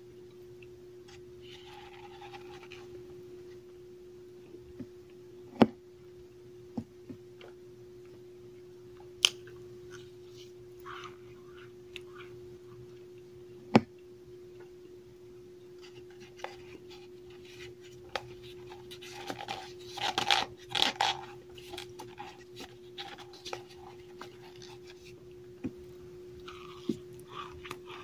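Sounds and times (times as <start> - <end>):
faint steady hum: 0.0 - 28.0
cornstarch crunching and squeaking: 16.0 - 25.2.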